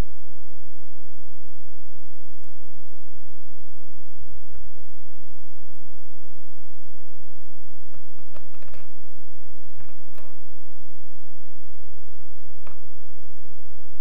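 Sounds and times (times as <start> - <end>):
steady low hum: 0.0 - 14.0
rubber strips tapping and rustling: 8.0 - 9.0.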